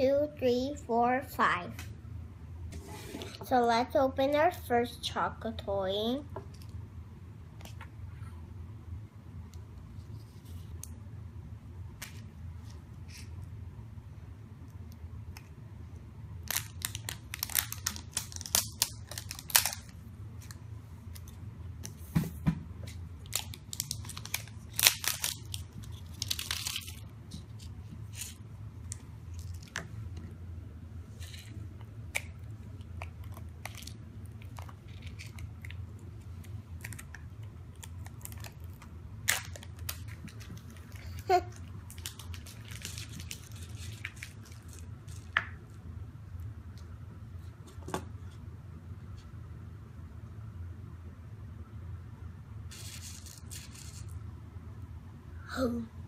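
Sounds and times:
foil wrapper crinkling and tearing: 16.4 - 20.0, 23.2 - 29.8, 33.0 - 35.8, 36.4 - 45.4, 52.7 - 54.2.

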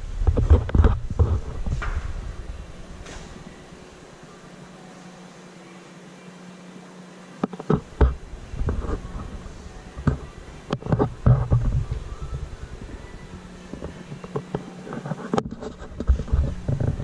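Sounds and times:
low rumbling thumps: 0.0 - 4.1
steady low hum: 0.0 - 17.0.

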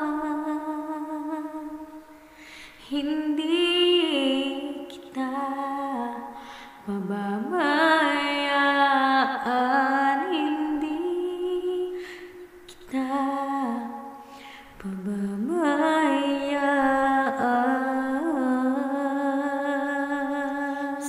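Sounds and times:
woman singing a slow ballad: 0.0 - 21.0.

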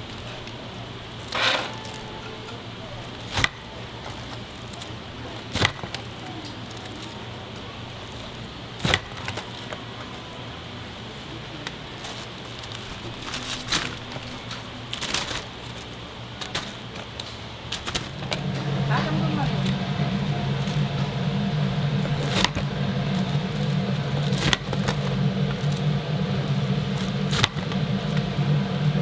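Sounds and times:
paper bag rustling: 0.0 - 28.3
low hum: 0.0 - 29.0
blade chopping fried chicken: 23.6 - 25.7.

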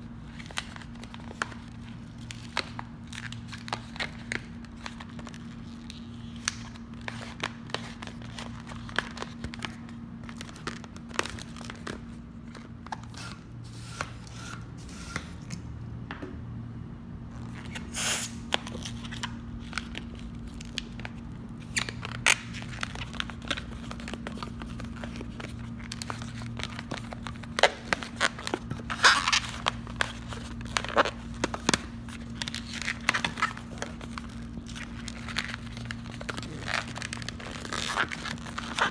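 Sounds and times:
steady low hum: 0.0 - 38.9
balloons squeaking and creaking: 21.7 - 38.9.

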